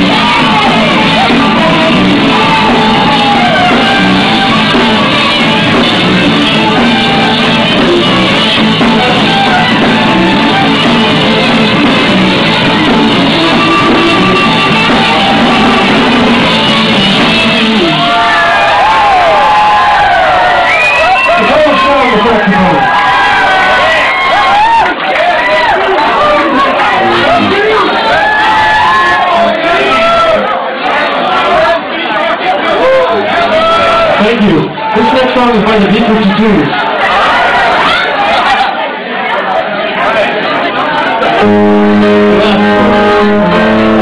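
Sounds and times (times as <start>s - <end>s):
live rock band: 0.0s - 31.6s, 41.2s - 44.0s
crowd cheering: 0.0s - 44.0s.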